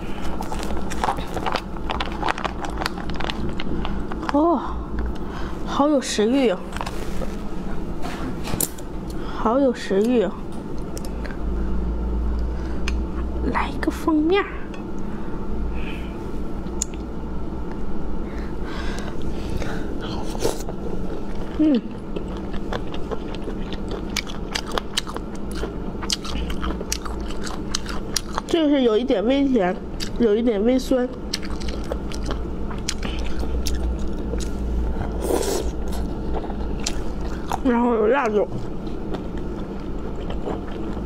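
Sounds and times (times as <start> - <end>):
close biting and chewing: 0.0 - 4.0, 20.1 - 28.5, 31.3 - 37.7, 38.6 - 41.0
steady low hum: 0.0 - 41.0.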